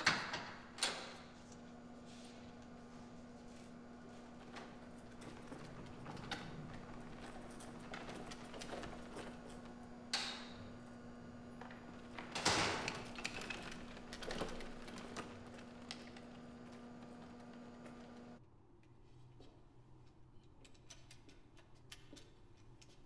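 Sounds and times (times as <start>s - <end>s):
steady low hum: 0.6s - 18.4s
cleaning cart rattling on tiles: 3.4s - 18.3s.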